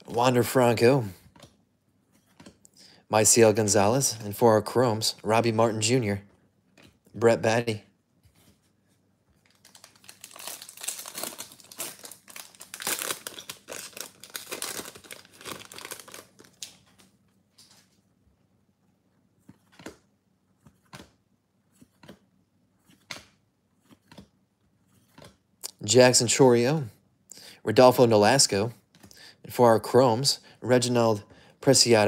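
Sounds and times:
foil wrapper crinkling and tearing: 0:09.4 - 0:16.9.

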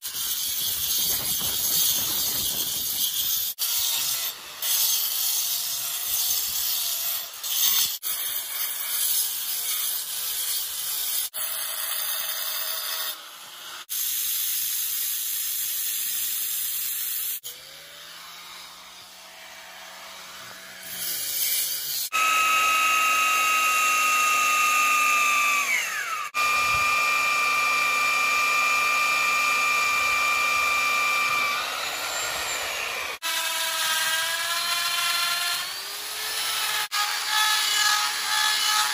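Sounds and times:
angle grinder grinding stone: 0:00.0 - 0:38.9
electric drill whining: 0:17.4 - 0:38.9
tool motor whining: 0:17.4 - 0:38.9.

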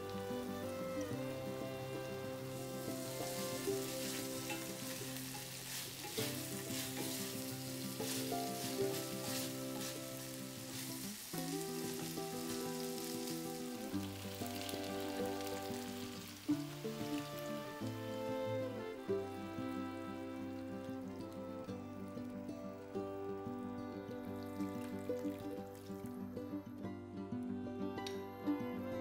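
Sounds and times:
chicken sizzling in a pan: 0:00.0 - 0:26.5
liquid poured into hot pan: 0:00.0 - 0:26.6
soft background music: 0:00.0 - 0:29.0
wooden spatula scraping: 0:02.3 - 0:17.4.

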